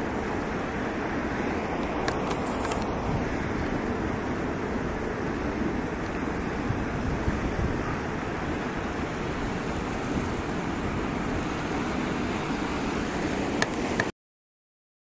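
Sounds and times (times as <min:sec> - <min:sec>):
water surging and spilling: 0:00.0 - 0:14.1
wind rumble on microphone: 0:00.0 - 0:14.1.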